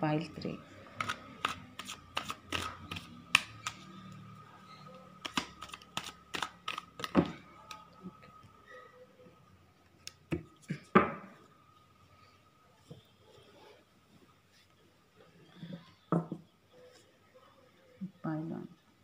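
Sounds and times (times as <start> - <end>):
cards being shuffled: 0.9 - 4.1, 5.2 - 7.8.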